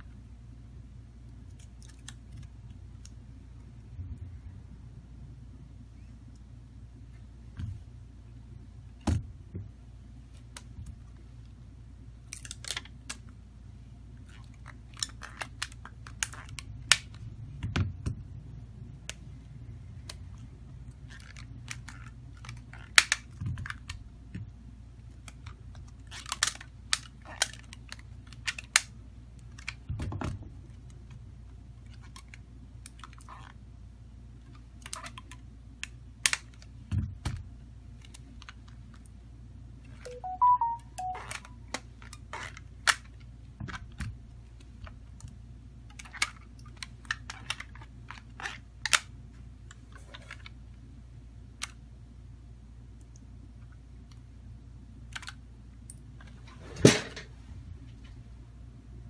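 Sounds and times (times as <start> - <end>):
steady low hum: 0.0 - 40.2.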